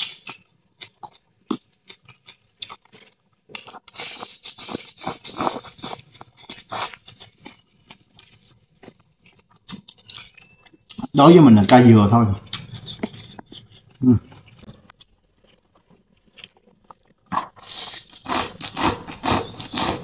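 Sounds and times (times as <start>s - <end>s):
person slurping noodles: 3.9s - 7.4s, 17.4s - 20.0s.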